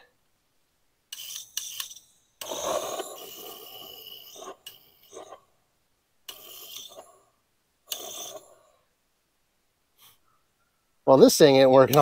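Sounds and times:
torch lighter hissing: 1.2s - 5.4s, 7.9s - 8.6s.

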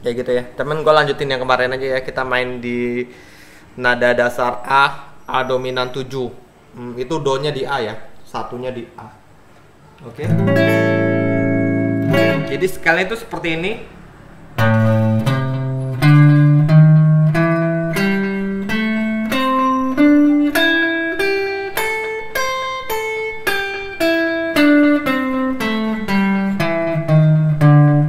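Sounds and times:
electric guitar picked notes: 10.2s - 12.9s, 14.6s - 28.0s.

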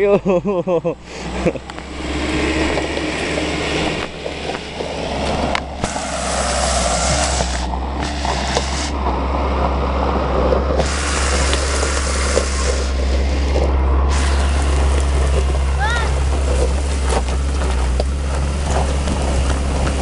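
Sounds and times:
truck driving on gravel: 0.0s - 20.0s
wind buffeting microphone: 1.8s - 20.0s.

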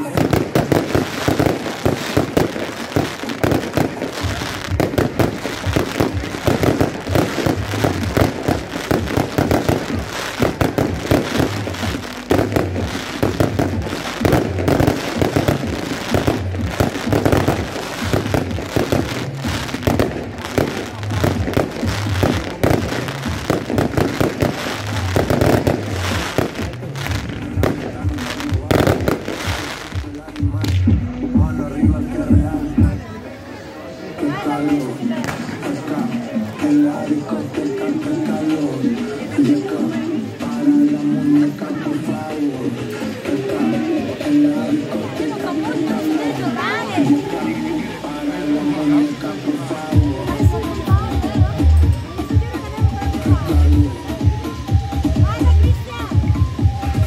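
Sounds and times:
fireworks bursting: 0.0s - 30.8s.

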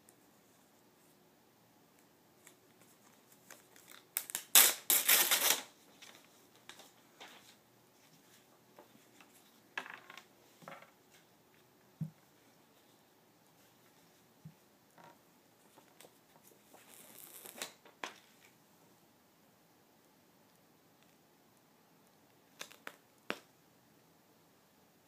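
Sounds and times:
packaging crinkling and tearing: 3.4s - 6.2s, 16.9s - 17.8s.

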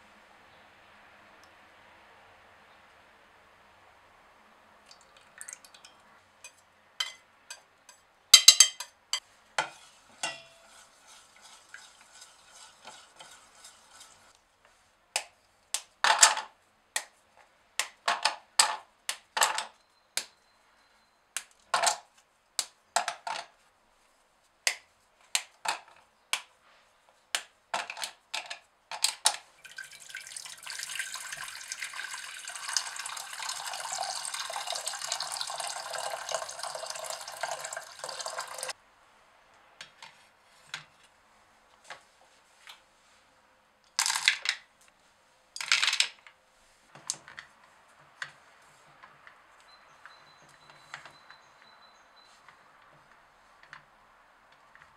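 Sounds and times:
water pouring into metal pot: 29.6s - 38.7s.

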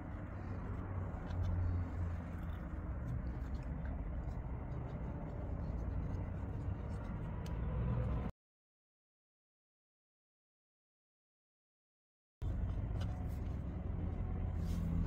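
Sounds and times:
low background rumble: 0.0s - 8.3s, 12.4s - 15.0s.

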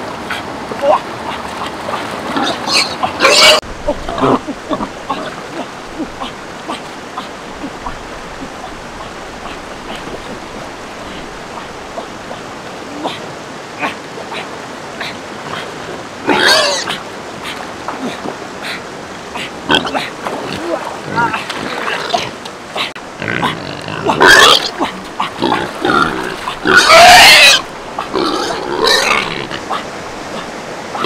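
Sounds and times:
flowing river water: 0.0s - 31.0s
splashing in shallow water: 0.0s - 31.0s.

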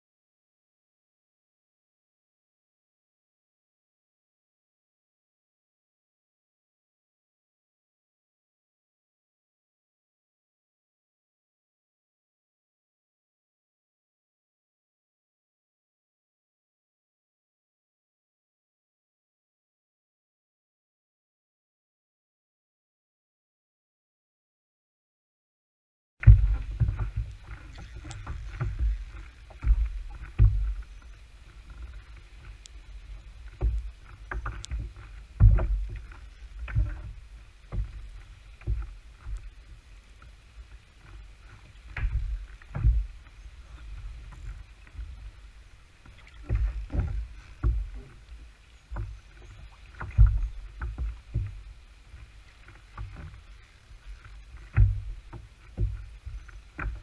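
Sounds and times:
low thuds on kayak: 26.2s - 39.5s, 41.8s - 45.3s, 46.0s - 53.4s, 54.1s - 57.0s.

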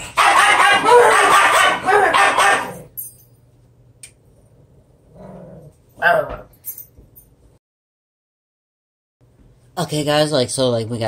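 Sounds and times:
small dog yapping: 0.2s - 2.8s.

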